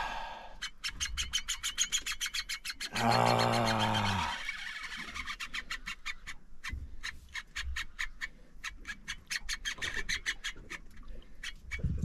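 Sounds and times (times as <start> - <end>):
person groaning: 2.9 - 4.4.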